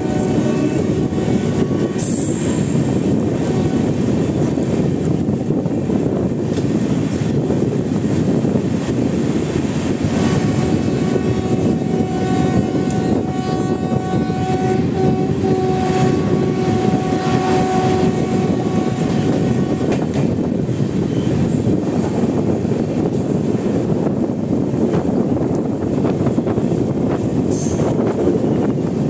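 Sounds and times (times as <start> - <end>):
train horn long blast: 0.0 - 4.0, 10.1 - 20.3
passenger train rushing and rumbling: 0.0 - 29.0.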